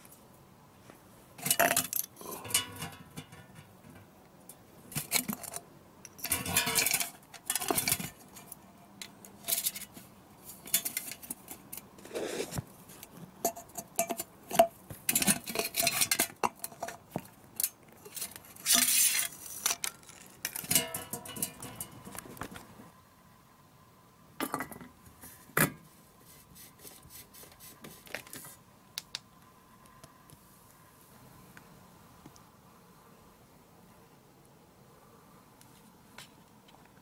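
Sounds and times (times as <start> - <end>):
wire scraping metal can: 1.4 - 4.1, 4.9 - 12.6, 13.4 - 22.2.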